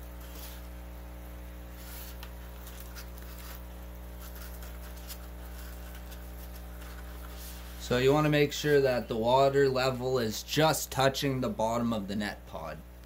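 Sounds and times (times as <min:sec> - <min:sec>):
low electrical hum: 0:00.0 - 0:13.0
faint clicks and rustles: 0:01.8 - 0:07.7.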